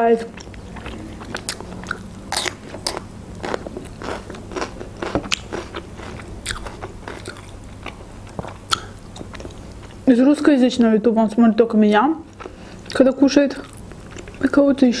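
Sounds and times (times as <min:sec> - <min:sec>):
person chewing bell pepper: 0:00.2 - 0:10.1, 0:12.3 - 0:14.6.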